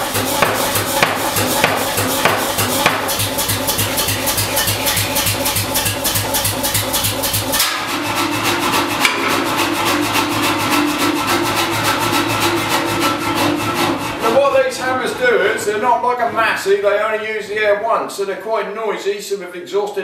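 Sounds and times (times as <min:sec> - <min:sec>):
power hammer ram knocking: 0:00.0 - 0:07.8
machine humming: 0:00.0 - 0:15.8.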